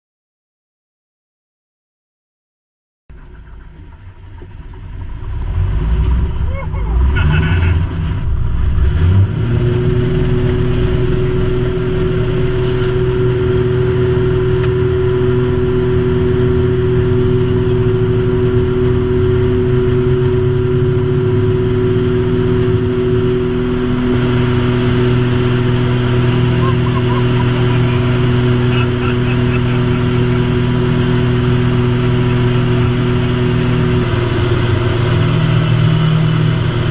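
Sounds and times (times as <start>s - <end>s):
plane engine and propeller droning: 3.1s - 36.9s.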